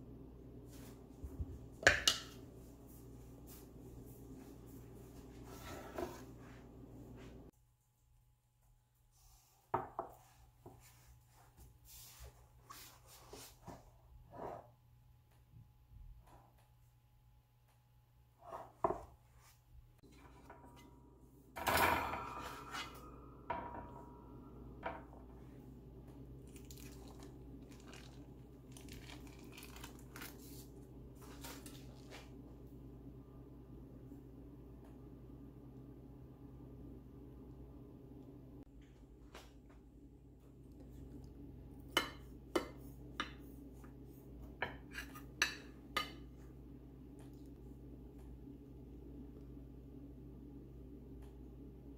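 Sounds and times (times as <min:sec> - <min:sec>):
metal pan clattering on rack: 0:21.6 - 0:24.1
parchment paper crinkling: 0:26.4 - 0:32.2.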